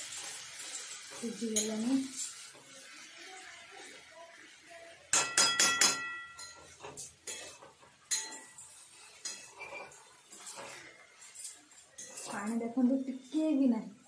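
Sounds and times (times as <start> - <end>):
metal spatula clanking steel pan: 5.1 - 10.5.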